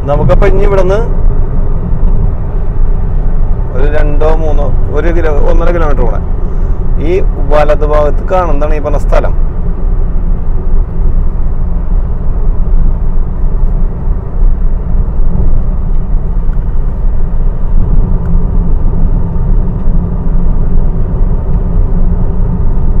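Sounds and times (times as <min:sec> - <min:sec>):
car driving from inside cabin: 0:00.0 - 0:23.0.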